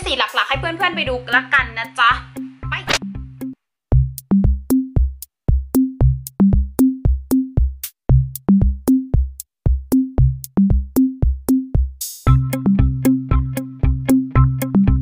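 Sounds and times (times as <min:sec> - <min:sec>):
electronic drum-machine beat: 0:00.1 - 0:15.0
short bass notes: 0:12.3 - 0:15.0.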